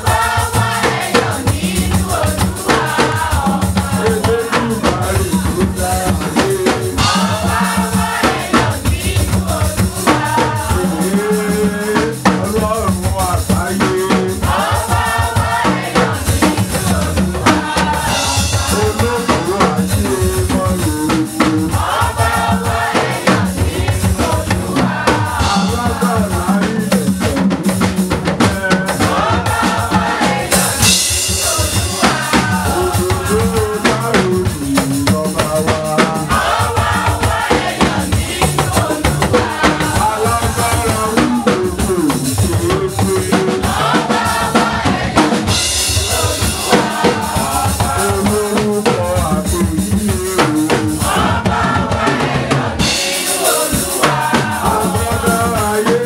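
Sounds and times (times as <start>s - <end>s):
drum kit beat: 0.0s - 56.0s
voices singing: 0.0s - 56.0s.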